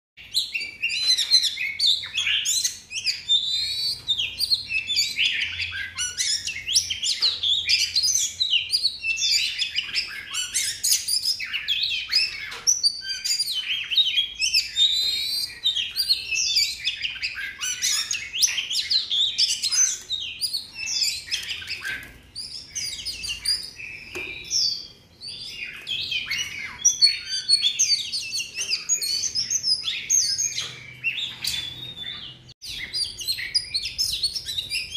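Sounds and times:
bird singing whistles and chatter: 0.2 - 34.9.

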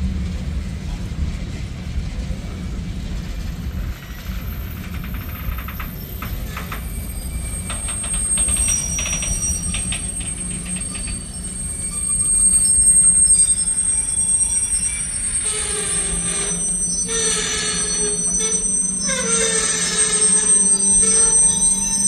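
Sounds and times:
train wheels rumbling on rail: 0.0 - 22.0
wheels clicking over rail joints: 3.4 - 11.4
high-pitched wheel squeal: 3.6 - 22.0.

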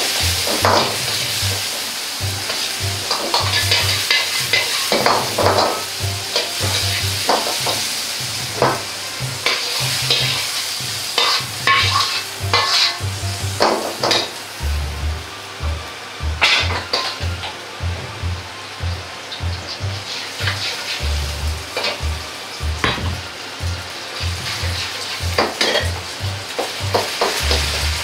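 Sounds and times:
tomato sizzling in a wok: 0.0 - 28.0
ladle scraping a wok: 2.4 - 8.6, 9.2 - 13.1, 19.8 - 22.0, 24.2 - 28.0
ladle clanking against wok: 8.5 - 13.0, 24.2 - 27.8.

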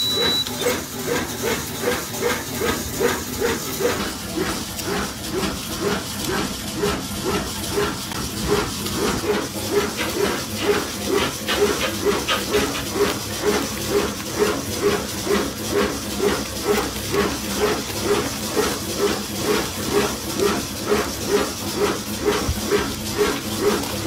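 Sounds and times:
machine knocking with hiss: 0.0 - 24.0.

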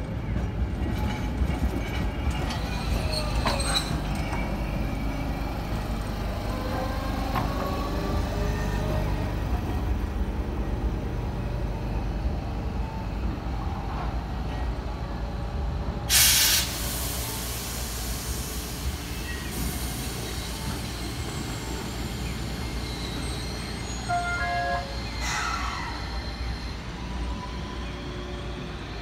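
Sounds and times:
tram rumble: 0.0 - 29.0
air brakes hissing: 16.1 - 26.4.

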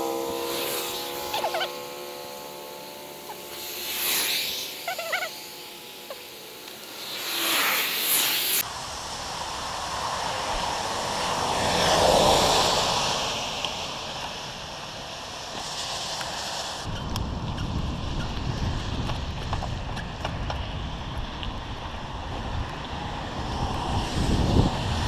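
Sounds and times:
car tyres hissing on wet road: 0.0 - 25.0
wind rumble on microphone: 8.6 - 25.0.

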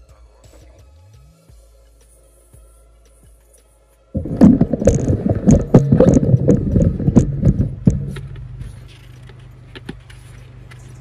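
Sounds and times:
steady low hum: 4.1 - 11.0.

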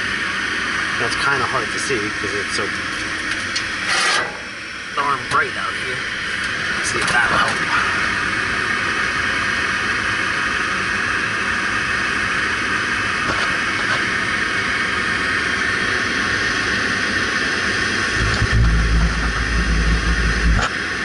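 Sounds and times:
draft motor airy rush: 16.0 - 20.7.

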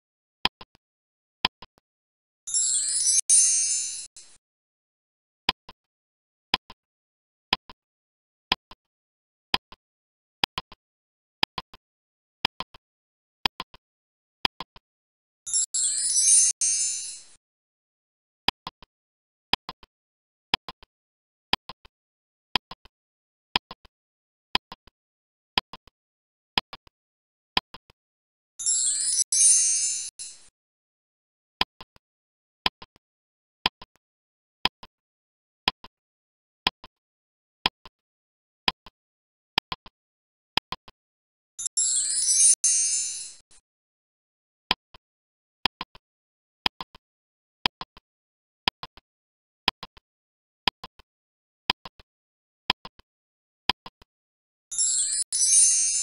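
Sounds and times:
shimmering wind chime effect: 2.5 - 4.3, 15.5 - 17.4, 28.6 - 30.4, 41.6 - 43.5, 54.7 - 56.0.

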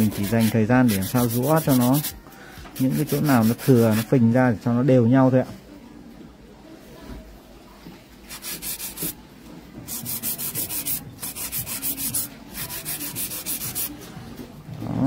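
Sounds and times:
nail file scraping: 0.0 - 2.2, 2.8 - 4.1, 9.9 - 13.9.

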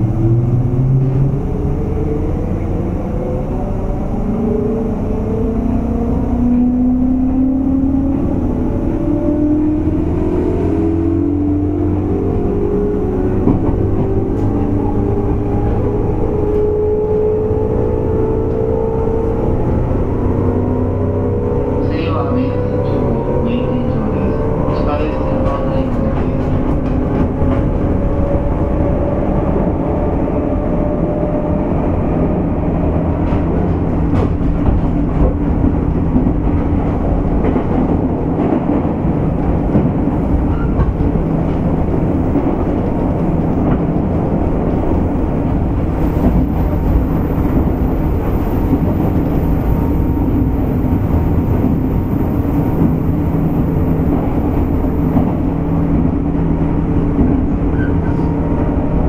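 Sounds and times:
train motor hum: 0.0 - 59.0
wheels rumbling on rail: 0.0 - 59.0
rail-joint clicks: 39.4 - 45.6.

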